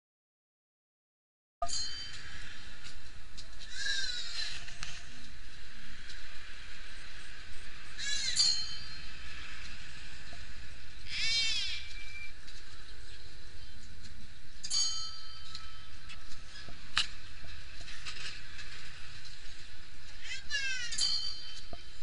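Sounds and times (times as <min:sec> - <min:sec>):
short metallic ring: 0:01.6 - 0:02.4, 0:08.3 - 0:09.2, 0:14.6 - 0:15.9, 0:20.9 - 0:21.8
prayer wheel creaking squeak: 0:08.0 - 0:09.1, 0:11.1 - 0:12.5, 0:20.3 - 0:21.8.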